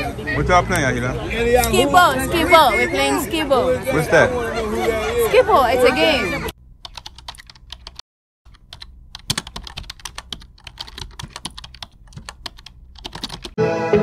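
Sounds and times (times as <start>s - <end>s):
music: 13.6s - 14.0s.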